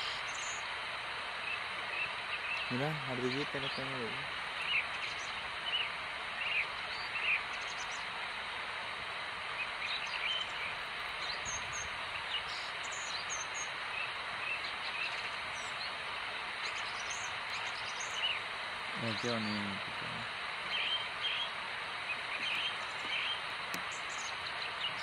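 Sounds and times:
steady background hiss: 0.0 - 25.0
bird chirps: 9.6 - 16.0, 16.6 - 25.0.

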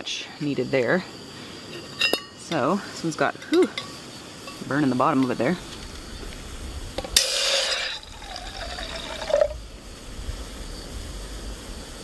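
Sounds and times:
water pouring into metal pot: 7.2 - 9.7.

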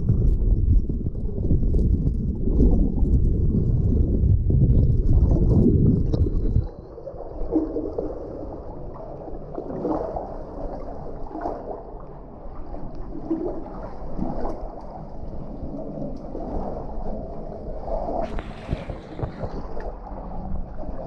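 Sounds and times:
stream water sloshing and gurgling: 0.0 - 21.0
soft water splashes: 1.7 - 21.0.

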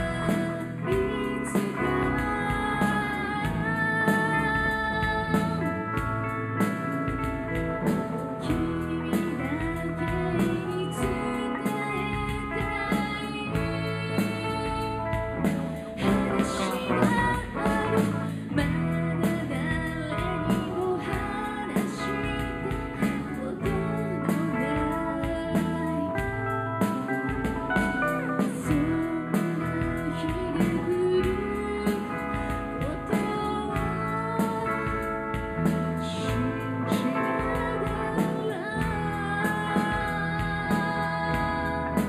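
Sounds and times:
guitar: 0.0 - 42.0
woman singing: 0.0 - 42.0
drum beat: 6.0 - 8.6.

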